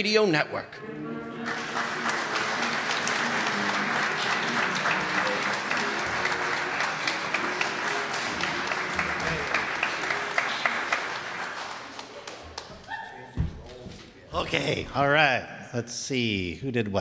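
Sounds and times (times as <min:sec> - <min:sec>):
quiet music: 0:00.7 - 0:12.4
audience applauding: 0:01.2 - 0:13.8.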